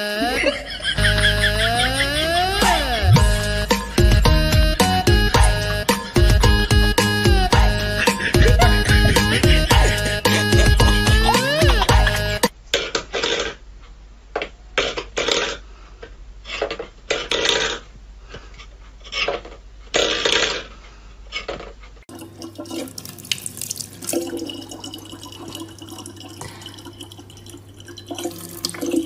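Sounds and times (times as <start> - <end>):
tap water running into bottle: 22.1 - 29.0.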